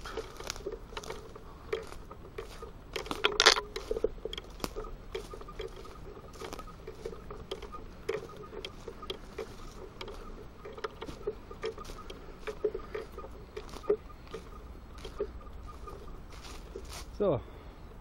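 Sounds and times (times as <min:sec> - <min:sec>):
footsteps through dry leaves: 0:00.0 - 0:03.2, 0:13.0 - 0:14.4, 0:15.0 - 0:17.4.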